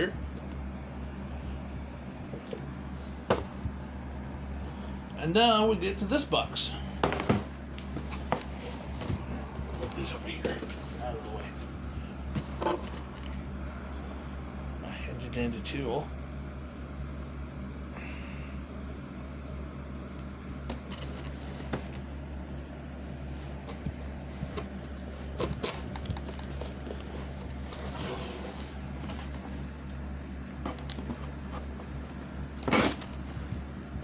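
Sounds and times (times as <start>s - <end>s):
steady low hum: 0.0s - 34.0s
cardboard box clicks and scraping: 23.4s - 29.8s, 30.6s - 33.8s.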